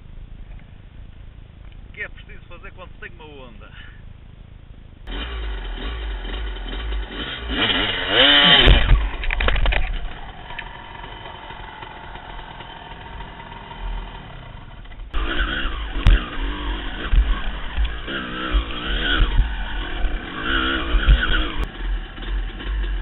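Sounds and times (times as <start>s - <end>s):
dirt bike engine revving: 5.0s - 23.0s.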